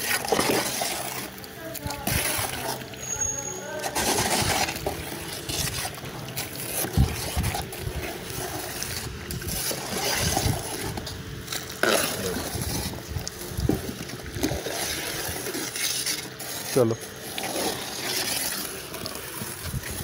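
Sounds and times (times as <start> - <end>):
sharp knocks and scrapes: 2.0 - 20.0
wind rumbling on microphone: 6.8 - 15.5, 19.6 - 20.0.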